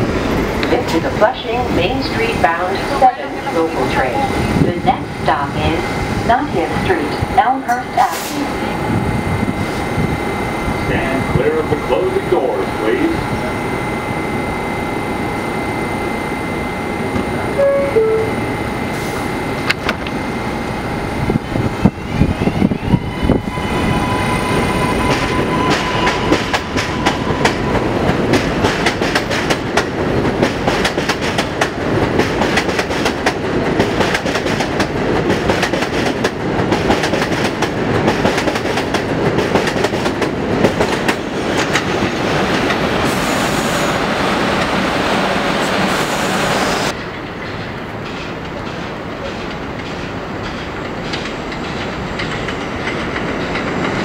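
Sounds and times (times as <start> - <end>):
train wheels clattering over rail joints: 25.0 - 43.2, 46.9 - 54.0.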